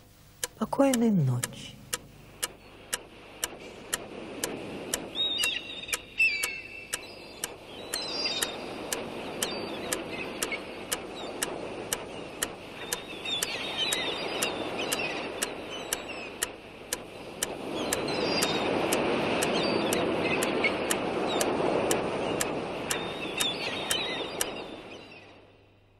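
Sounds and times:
noisy wash: 0.0s - 25.5s
clock ticking: 0.4s - 12.5s.

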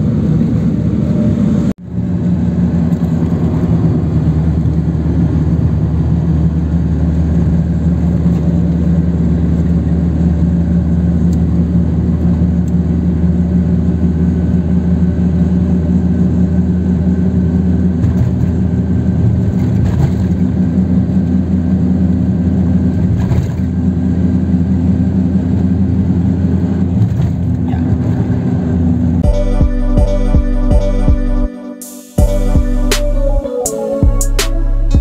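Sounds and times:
car engine and road noise: 0.0s - 35.0s
music with pulsing beat: 29.2s - 35.0s.

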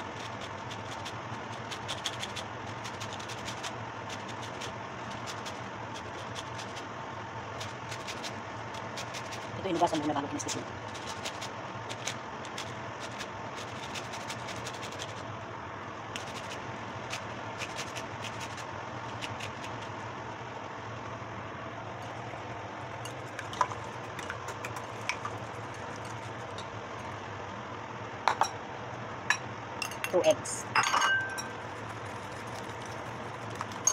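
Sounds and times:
grater scraping orange peel: 0.0s - 6.8s, 10.8s - 15.2s, 16.2s - 19.9s
steady low hum: 0.0s - 33.9s
whisk clinking against bowl: 30.8s - 32.6s.

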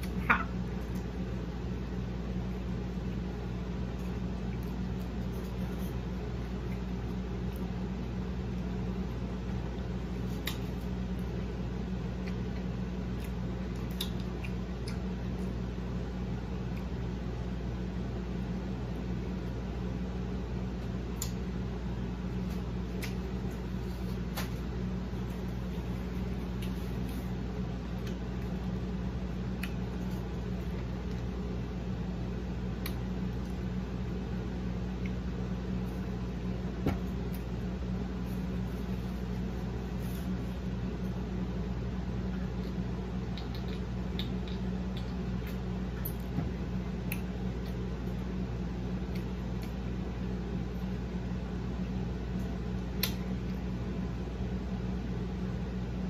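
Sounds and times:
steady low hum: 0.0s - 56.0s
mouth clicks and smacks chewing: 12.2s - 15.6s, 29.6s - 31.2s, 42.6s - 46.3s.

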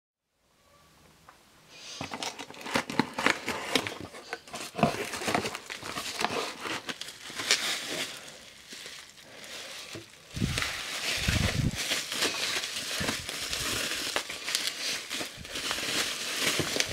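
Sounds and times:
bubble wrap crinkling: 2.0s - 16.9s.

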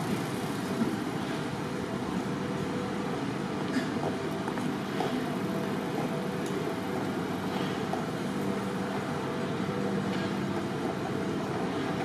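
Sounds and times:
traffic engines humming: 0.0s - 12.0s.

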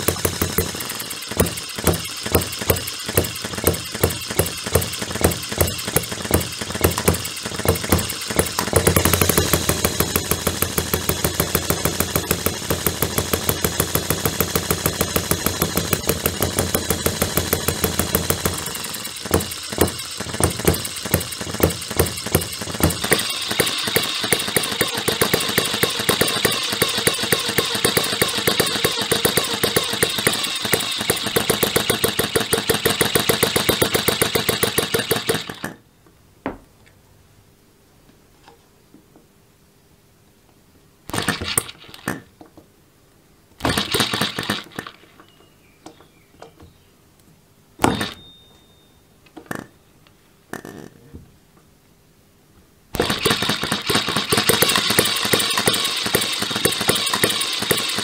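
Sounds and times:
model gas engine popping: 0.0s - 35.8s, 41.1s - 42.3s, 43.6s - 46.6s, 47.8s - 48.2s, 53.0s - 58.0s.

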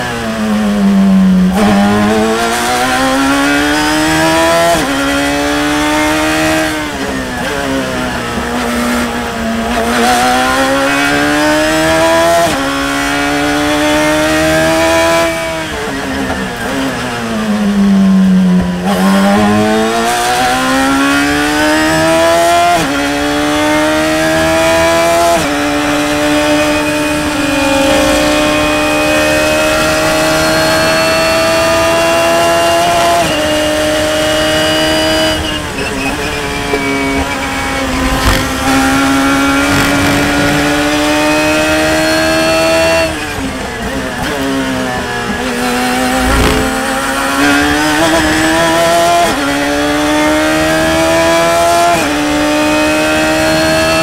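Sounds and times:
racing car engine revving: 18.6s - 54.0s
gear upshifts: 36.1s - 42.8s, 45.8s - 47.6s.

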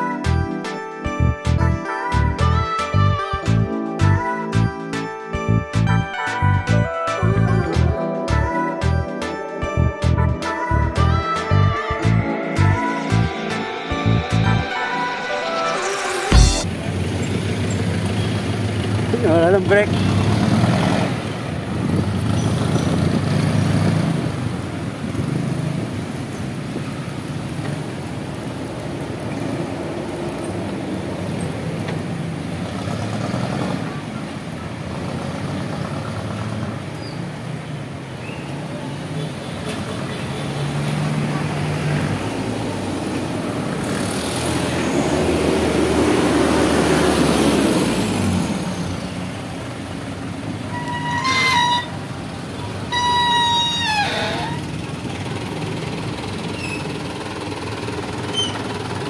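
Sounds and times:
steady engine hum: 16.3s - 59.0s
vehicle engines in slow traffic: 16.6s - 59.0s.

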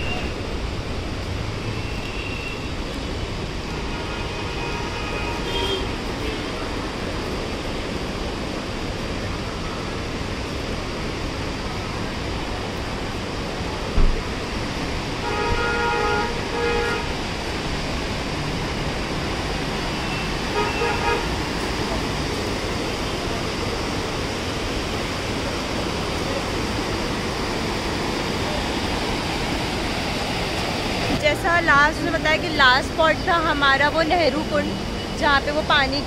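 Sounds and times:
steady rushing noise: 0.0s - 36.0s
vehicle horn honking: 3.7s - 6.5s, 15.2s - 17.2s, 20.0s - 21.4s
sharp thump: 14.0s - 14.2s.

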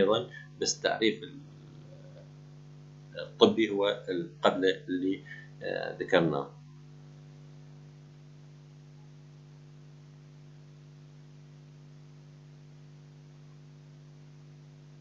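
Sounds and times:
faint hiss: 0.0s - 7.2s
low electrical hum: 0.0s - 15.0s.

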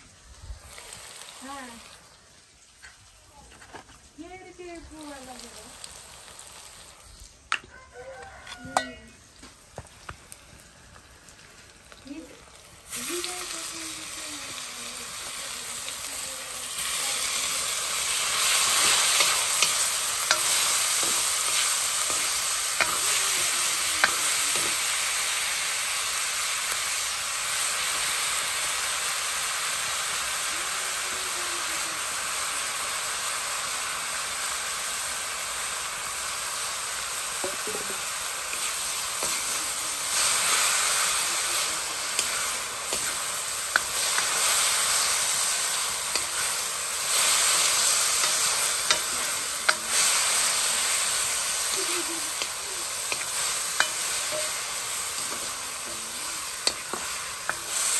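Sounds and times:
food sizzling in hot oil: 0.0s - 57.9s.

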